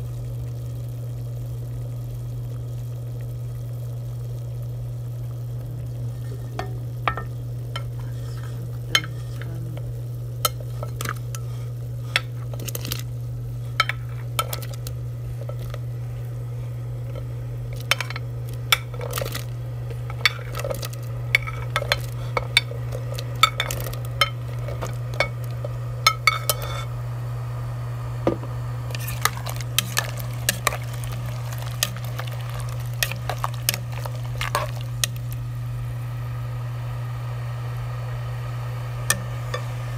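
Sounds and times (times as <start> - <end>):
low hum: 0.0 - 39.9
plate and spoon clinking on pot: 26.1 - 26.9.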